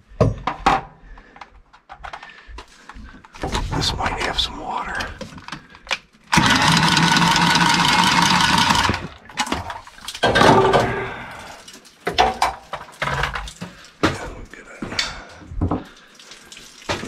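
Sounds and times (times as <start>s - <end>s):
tubing cutter cutting pipe: 6.3s - 9.1s.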